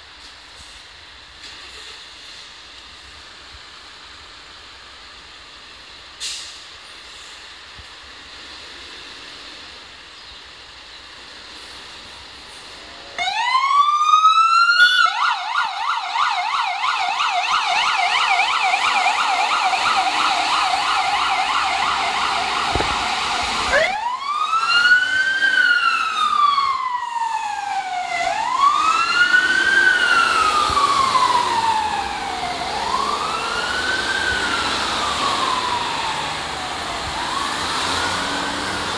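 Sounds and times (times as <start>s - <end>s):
fire engine siren: 13.0s - 38.9s.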